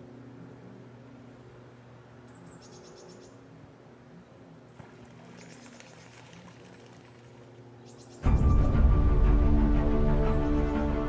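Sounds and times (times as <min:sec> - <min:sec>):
distant road traffic hum: 0:00.0 - 0:08.5.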